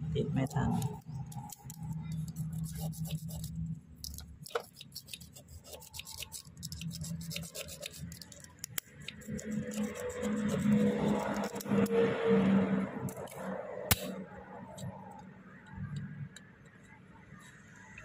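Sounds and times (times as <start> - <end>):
metal blade scraping putty: 0.4 - 12.2.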